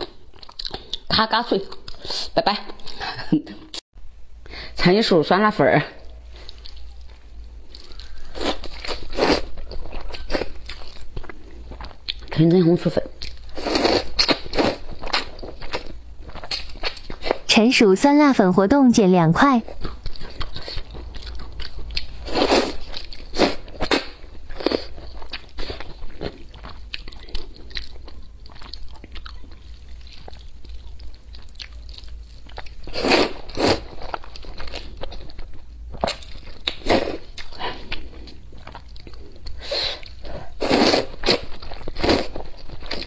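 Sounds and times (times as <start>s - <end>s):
slurping and wet chewing: 6.0s - 12.4s, 13.2s - 17.4s, 19.7s - 43.0s.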